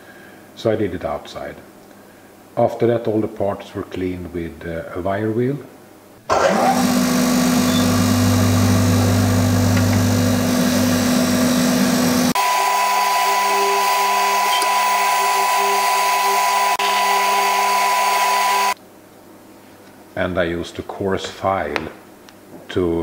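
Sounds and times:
bench grinder with wire wheel: 6.4s - 18.8s.

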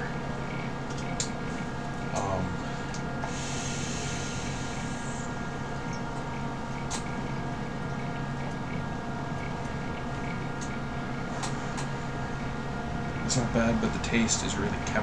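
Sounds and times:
low hum: 0.0s - 15.0s
hookah airy hiss: 2.4s - 5.8s.

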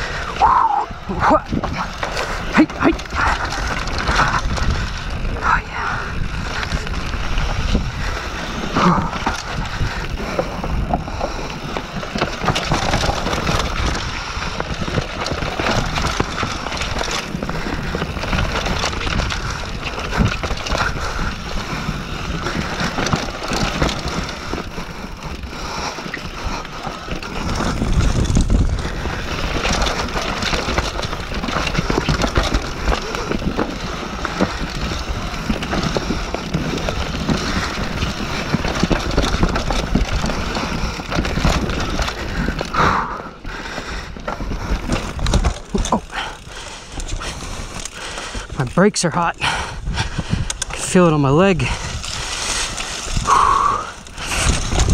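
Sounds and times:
wind on microphone: 0.0s - 11.9s, 27.2s - 42.9s, 49.4s - 50.8s, 51.6s - 54.9s
bike rattling and knocking: 0.0s - 54.9s
bike tyres on dirt and rocks: 0.0s - 54.9s.

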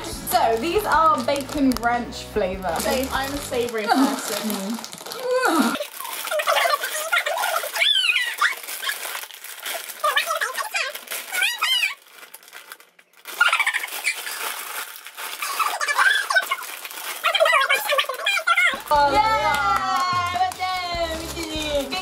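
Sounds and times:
foil crisp packet crinkling: 0.0s - 22.0s
women squealing and laughing: 5.2s - 9.0s, 13.4s - 14.4s, 15.4s - 20.2s.

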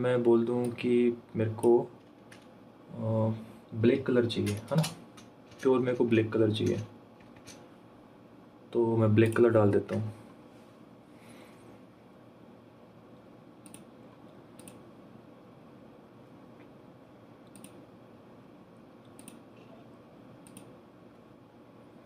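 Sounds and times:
computer mouse clicks: 13.6s - 13.9s, 14.6s - 14.8s, 17.4s - 17.8s, 19.0s - 19.7s, 20.4s - 20.8s.

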